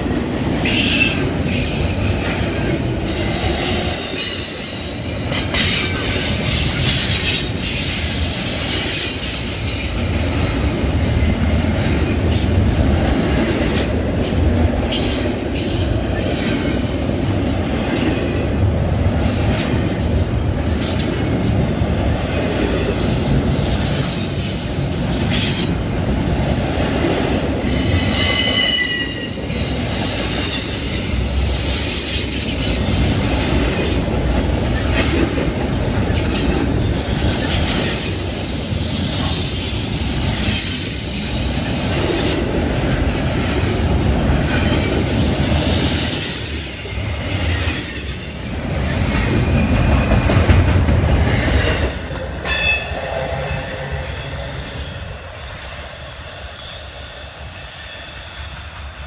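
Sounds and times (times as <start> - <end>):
freight train wheels rumbling: 0.0 - 59.0
high wheel squeal: 0.7 - 10.3, 27.6 - 32.8, 45.4 - 58.6.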